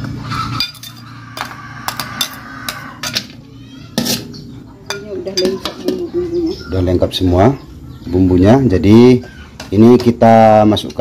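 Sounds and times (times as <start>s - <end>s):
metal ladle scraping and clinking: 0.4s - 3.3s, 4.0s - 6.0s.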